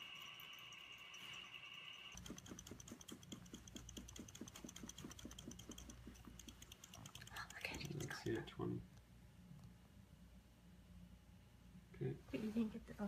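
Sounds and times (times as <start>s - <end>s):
vessel rattling when shaken: 2.1s - 8.5s.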